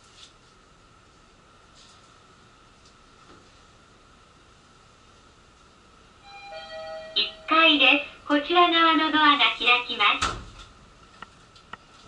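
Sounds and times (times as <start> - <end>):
electronic chime: 6.2 - 7.8
steady high tone: 6.2 - 9.0.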